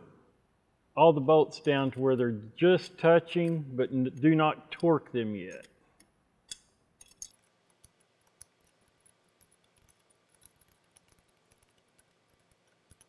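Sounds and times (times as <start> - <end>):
small metallic clicks of tool: 5.5 - 13.0.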